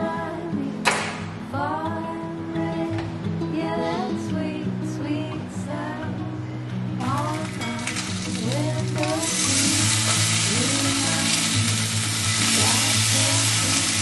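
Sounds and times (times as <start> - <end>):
soft background music: 0.0 - 14.0
bacon sizzling in a skillet: 7.0 - 14.0.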